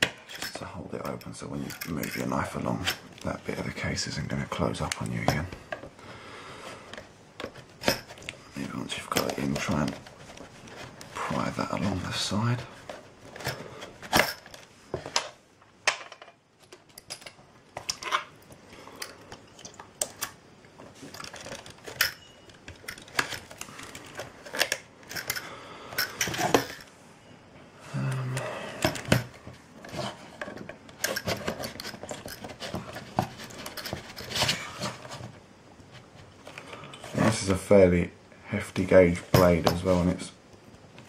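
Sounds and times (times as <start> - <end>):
metal tools clicking on plastic: 0.2 - 3.0, 21.1 - 26.9.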